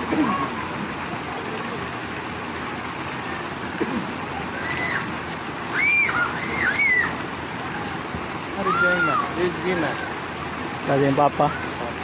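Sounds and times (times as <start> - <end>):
children crying out: 0.0 - 0.8, 4.3 - 10.2
water rushing and splashing: 0.0 - 12.0.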